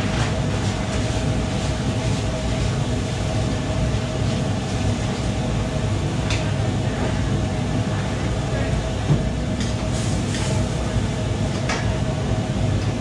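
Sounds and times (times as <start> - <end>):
extraction hood and burner rumble: 0.0 - 13.0.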